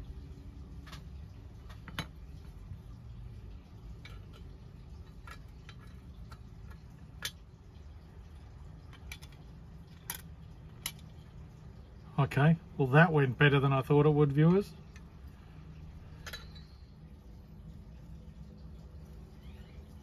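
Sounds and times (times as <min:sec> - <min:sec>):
low steady hum: 0:00.0 - 0:20.0
metal toy clicks and taps: 0:08.9 - 0:11.1.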